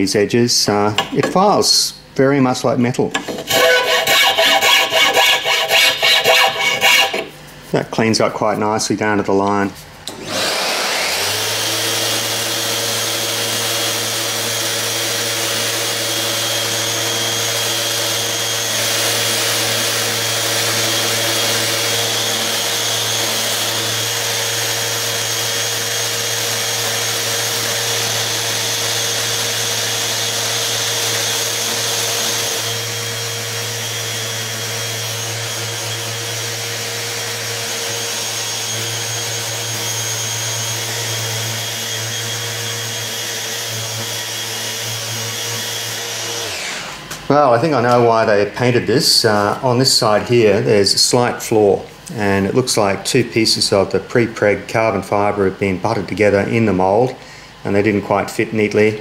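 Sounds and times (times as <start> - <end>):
orbital sander whining: 3.1 - 7.4, 10.1 - 48.8.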